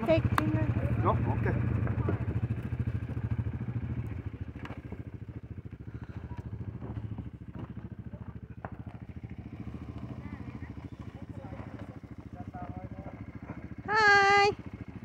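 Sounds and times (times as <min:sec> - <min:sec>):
atv engine chugging: 0:00.0 - 0:15.0.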